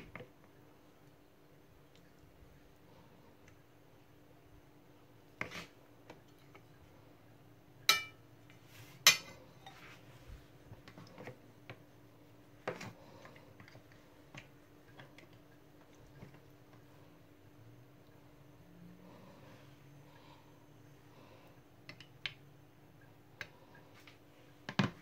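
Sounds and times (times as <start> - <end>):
spoons clinking on ceramic: 7.9 - 8.2, 9.1 - 9.8.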